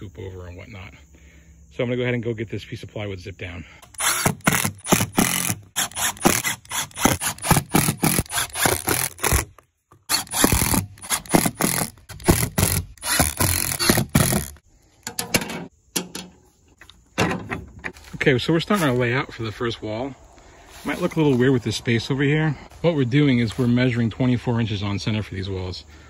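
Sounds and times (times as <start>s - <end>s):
impact driver driving screws: 3.8s - 14.6s.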